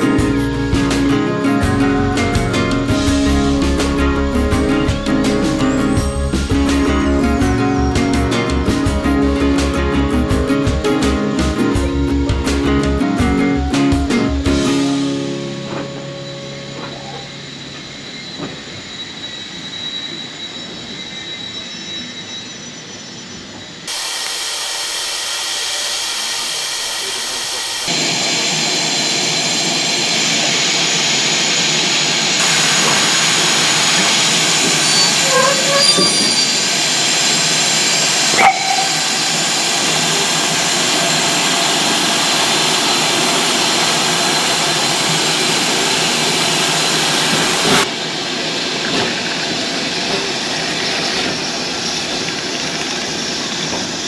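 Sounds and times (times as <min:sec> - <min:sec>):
steam hissing from locomotive: 0:16.9 - 0:54.0.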